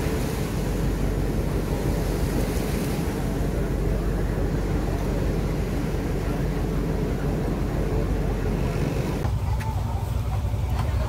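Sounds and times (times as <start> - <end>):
boat engine low rumble: 0.0 - 11.0
sea noise: 0.0 - 11.0
wind: 0.0 - 11.0.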